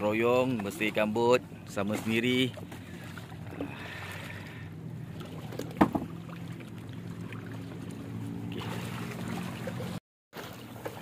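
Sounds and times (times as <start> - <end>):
boat engine idling: 0.0 - 10.0
water wash: 0.0 - 11.0
knock on boat: 5.6 - 6.2.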